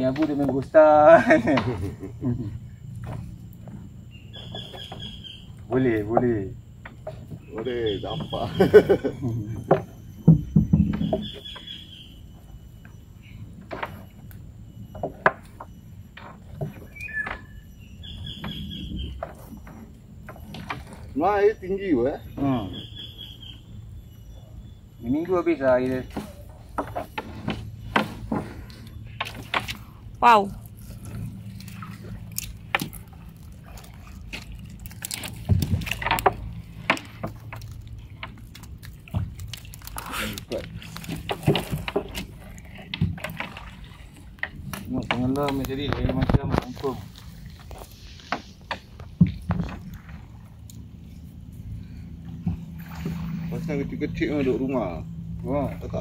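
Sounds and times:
low steady hum: 0:00.0 - 0:56.0
water dripping and splashing: 0:30.6 - 0:46.0.

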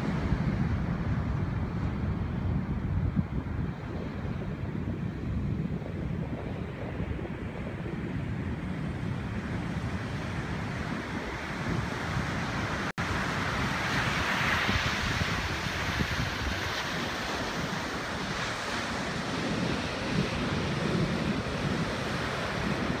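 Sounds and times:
wind buffeting microphone: 0:00.0 - 0:23.0
ocean surf breaking: 0:09.8 - 0:23.0.

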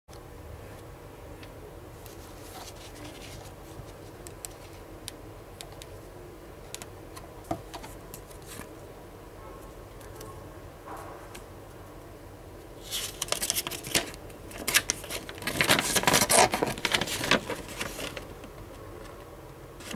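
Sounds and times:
steady low hum: 0:00.1 - 0:19.9
plastic packaging clicks and crinkles: 0:12.9 - 0:19.9.

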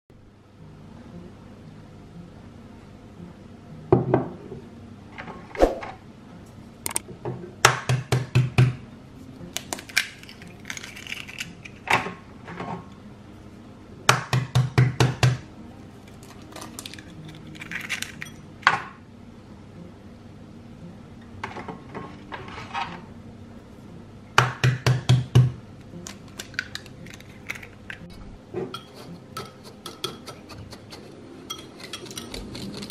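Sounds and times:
eggshells crackling apart: 0:09.6 - 0:11.8, 0:16.0 - 0:18.2, 0:26.0 - 0:28.0.

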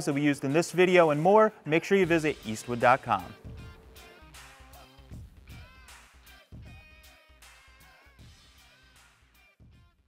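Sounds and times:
quiet background music: 0:00.0 - 0:06.8.

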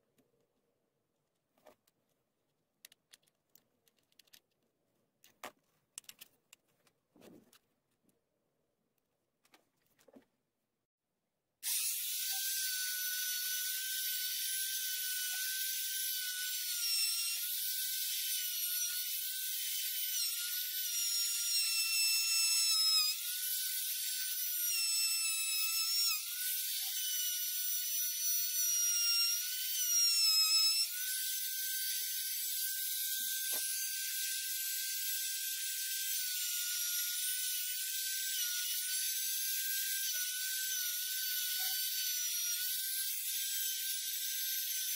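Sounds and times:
router whining cutting wood: 0:11.6 - 0:44.9.

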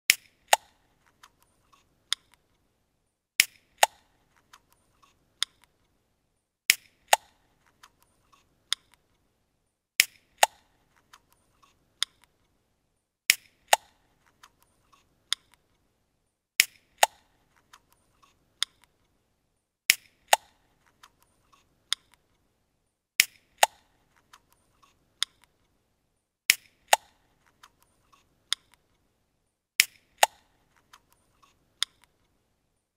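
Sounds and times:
small clicks: 0:00.1 - 0:02.7, 0:03.4 - 0:06.0, 0:06.7 - 0:09.3, 0:10.0 - 0:12.6, 0:13.3 - 0:15.9, 0:16.6 - 0:19.2, 0:19.9 - 0:22.5, 0:23.2 - 0:25.8, 0:26.5 - 0:29.1, 0:29.8 - 0:32.4.

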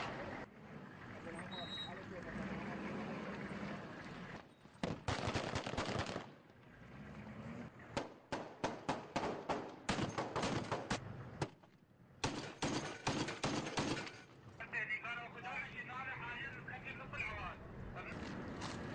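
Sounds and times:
automatic gunfire: 0:04.8 - 0:06.3, 0:08.3 - 0:11.0, 0:12.2 - 0:14.2.

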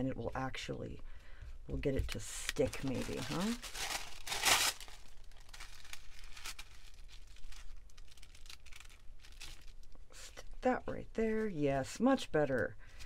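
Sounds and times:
paper crinkling and rustling: 0:02.0 - 0:10.0.

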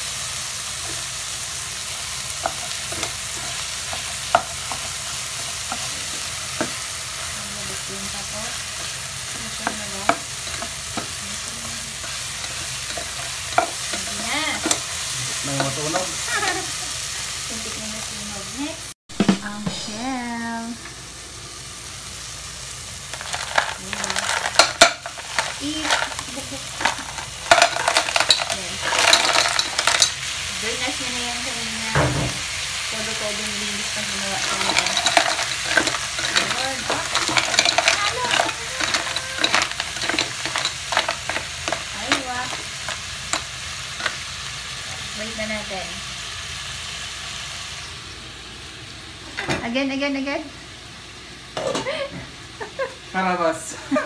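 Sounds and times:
vegetables sizzling in oil: 0:00.0 - 0:54.0
clam shells clattering in pan: 0:01.8 - 0:16.6, 0:23.0 - 0:31.0, 0:33.8 - 0:44.3
spatula scraping and knocking pot: 0:34.3 - 0:44.2.

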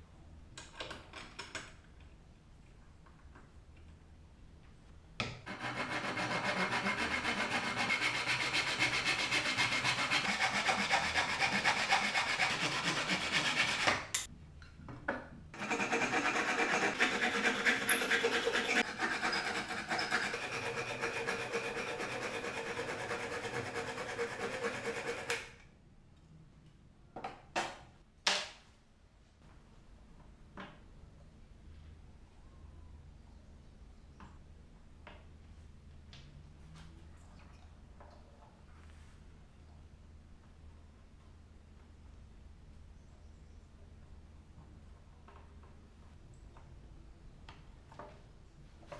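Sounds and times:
hand saw cutting wood: 0:05.5 - 0:14.3, 0:15.6 - 0:25.6.

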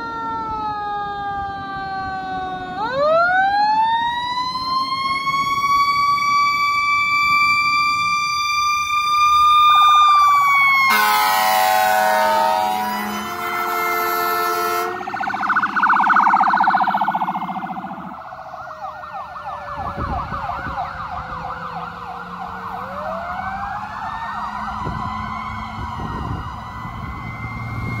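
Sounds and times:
second siren wailing: 0:00.0 - 0:28.0
vehicle horn blast: 0:10.9 - 0:15.0
electronic siren warble and yelp: 0:14.7 - 0:21.3.

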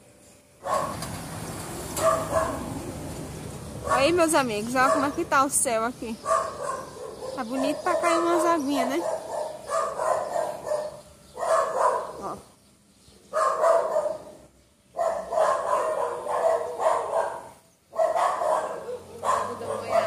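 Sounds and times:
dogs barking: 0:00.6 - 0:01.1, 0:01.9 - 0:02.8, 0:03.8 - 0:05.5, 0:06.2 - 0:12.4, 0:13.3 - 0:20.0.

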